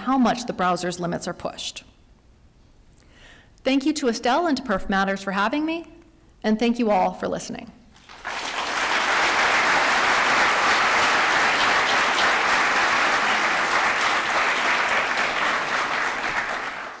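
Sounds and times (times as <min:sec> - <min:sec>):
audience applauding: 0:08.0 - 0:17.0.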